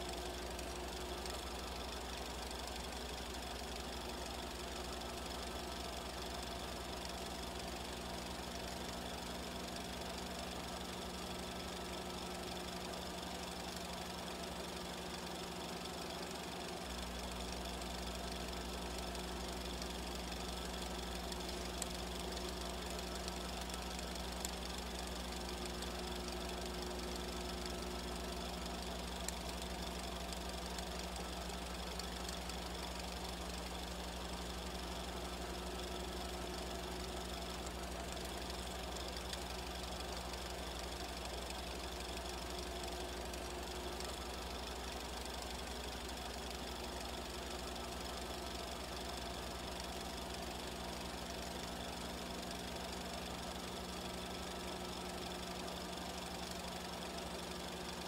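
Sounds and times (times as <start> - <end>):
faint ticks: 0.0 - 58.0
machine hum with running rattle: 0.0 - 58.0.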